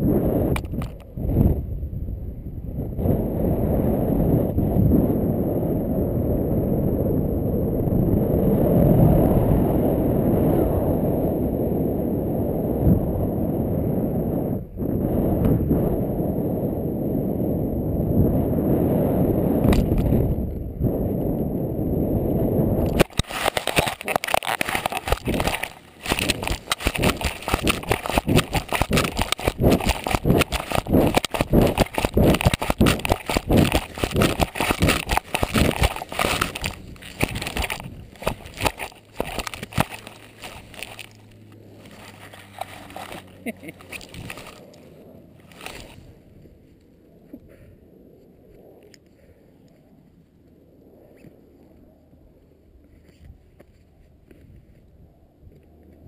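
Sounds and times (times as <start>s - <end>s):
wind buffeting microphone: 0.0s - 46.6s
camera housing scraping against clothing: 0.5s - 1.1s, 22.8s - 44.8s, 45.4s - 46.1s.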